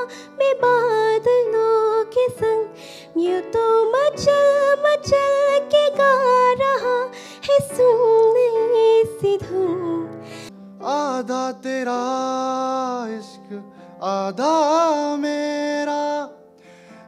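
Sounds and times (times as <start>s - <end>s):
woman singing into microphone: 0.0s - 10.2s.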